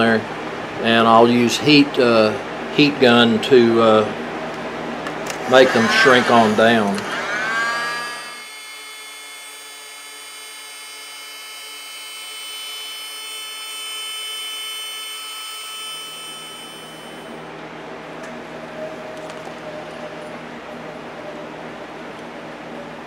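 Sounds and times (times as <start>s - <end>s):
heat gun blower whining: 4.0s - 17.4s.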